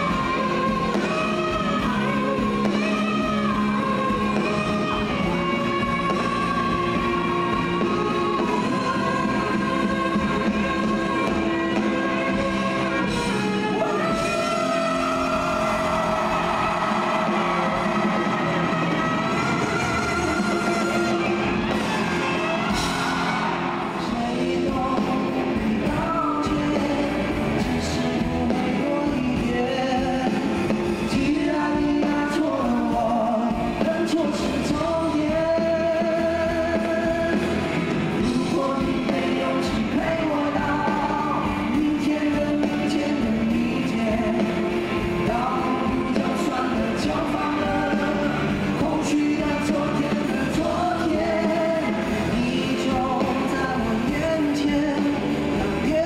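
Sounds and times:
live rock song: 0.0s - 56.0s
man singing: 0.0s - 56.0s.

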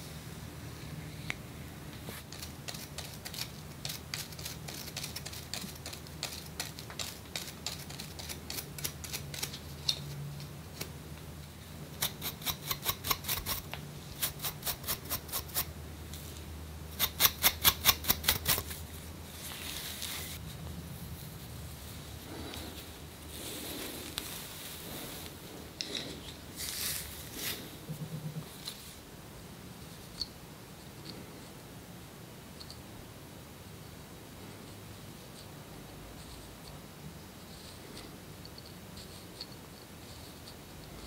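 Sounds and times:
fingers scratching a scalp: 12.0s - 15.7s, 17.0s - 18.8s.

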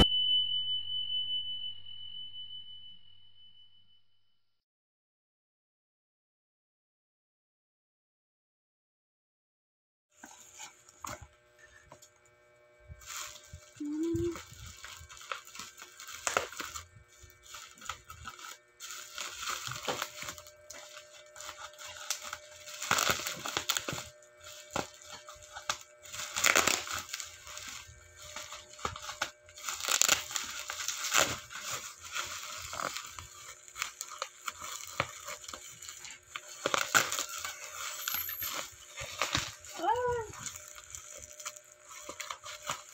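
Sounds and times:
bubble wrap crinkling: 10.2s - 12.2s, 12.8s - 42.9s
scissors cutting plastic: 13.0s - 42.9s.

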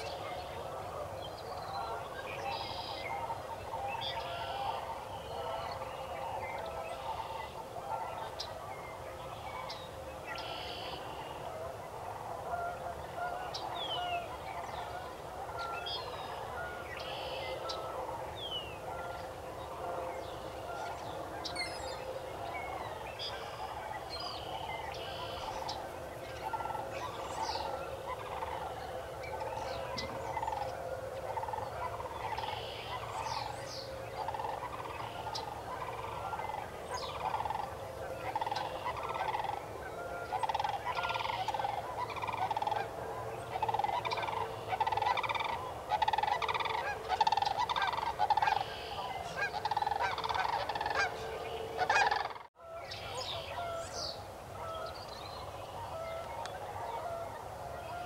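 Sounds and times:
waterfowl honking: 0.0s - 58.0s.

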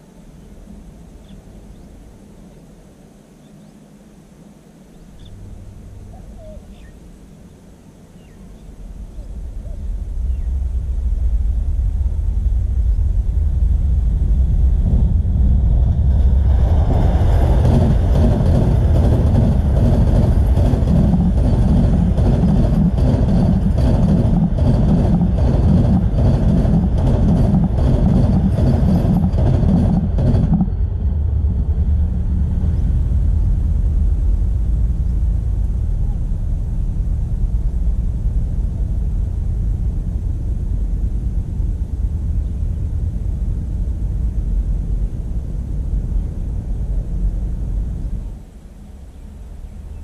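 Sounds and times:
train rumble: 3.9s - 50.0s
train wheels clattering: 16.0s - 31.2s.

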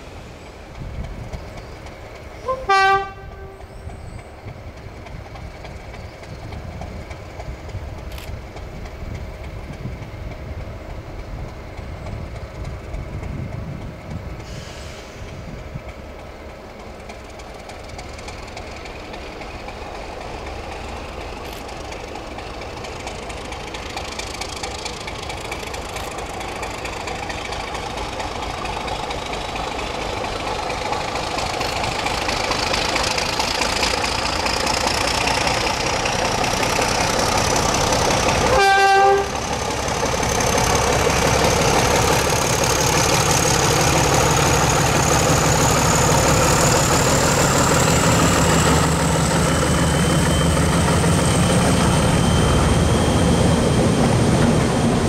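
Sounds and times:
diesel train rumbling: 0.0s - 55.0s
train horn blast: 2.4s - 3.8s, 38.4s - 39.4s.

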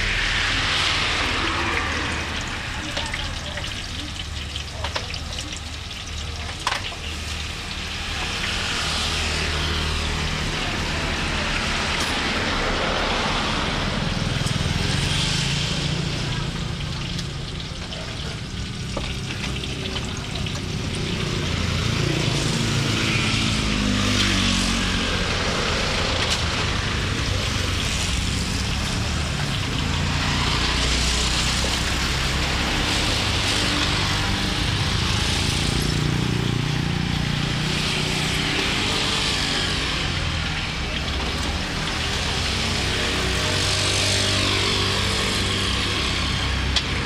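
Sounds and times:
deep-frying sizzle in oil: 0.0s - 47.0s.

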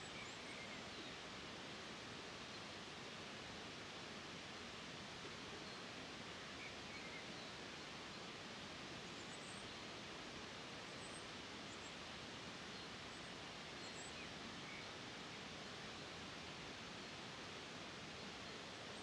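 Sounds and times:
faint bird chirps: 0.0s - 1.2s, 6.6s - 7.6s, 12.7s - 15.0s
running water hiss: 0.0s - 19.0s.

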